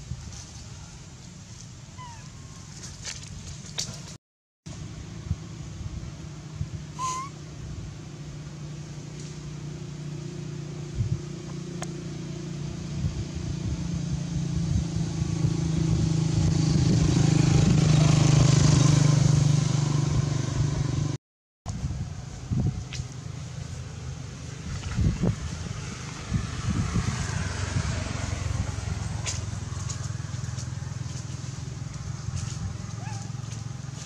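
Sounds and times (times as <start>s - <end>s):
vehicle engine humming: 0.0s - 34.0s
brief high squeak: 7.0s - 7.4s.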